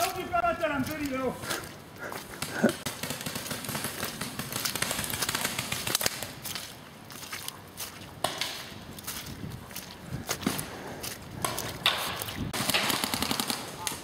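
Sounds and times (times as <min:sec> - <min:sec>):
footsteps crunching through dry leaves: 0:00.0 - 0:12.5
paintball markers firing: 0:02.9 - 0:06.3, 0:11.8 - 0:14.0.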